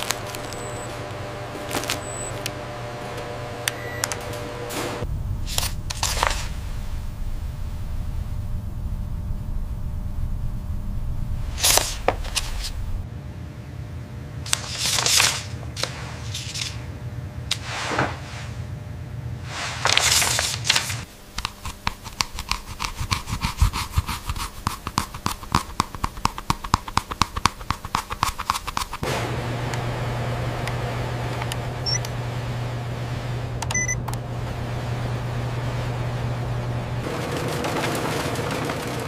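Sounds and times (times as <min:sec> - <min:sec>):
paper swishing: 0:00.0 - 0:02.4, 0:04.7 - 0:06.6, 0:11.4 - 0:12.8, 0:14.5 - 0:16.9, 0:17.5 - 0:18.7, 0:19.4 - 0:29.0
low steady hum: 0:00.0 - 0:26.3, 0:29.0 - 0:37.2.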